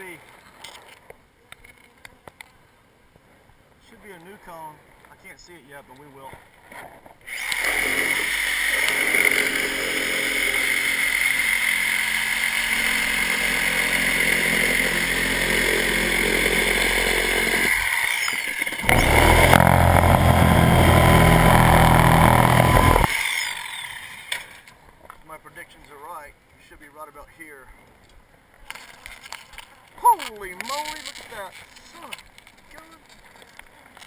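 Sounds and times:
reciprocating saw cutting: 0:07.3 - 0:24.6.

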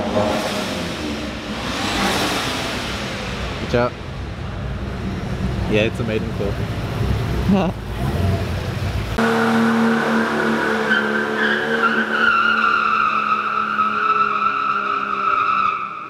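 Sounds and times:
engine droning: 0:00.0 - 0:14.1
tyres squealing on concrete: 0:09.7 - 0:16.0.

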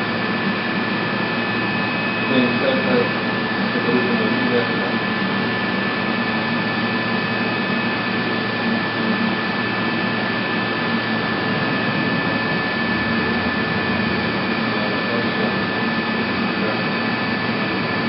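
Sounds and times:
milling machine running: 0:09.1 - 0:18.0.

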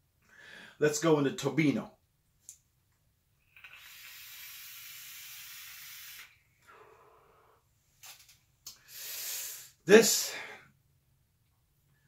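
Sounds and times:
breathy exhale: 0:00.3 - 0:00.8, 0:06.6 - 0:07.6
vape click: 0:03.5 - 0:06.3
airy hiss of vape draw: 0:03.5 - 0:06.4, 0:08.7 - 0:09.8.

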